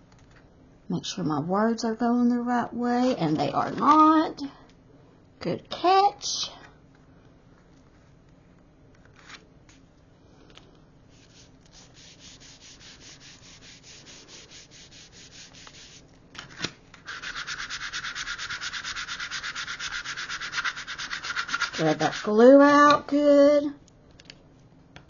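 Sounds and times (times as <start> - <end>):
tool rubbing over paper: 11.1 - 16.1, 17.0 - 22.6.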